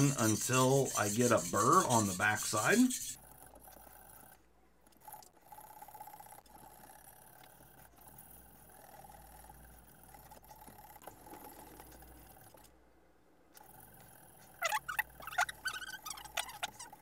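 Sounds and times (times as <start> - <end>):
sharpening stone scraping knife: 0.0 - 3.2.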